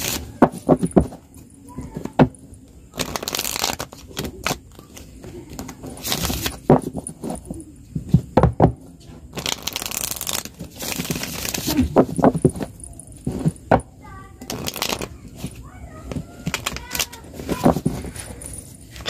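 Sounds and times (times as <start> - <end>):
cards rustling: 2.0 - 7.6, 9.2 - 13.7, 14.4 - 19.0
deck tapping and thudding: 11.1 - 13.9.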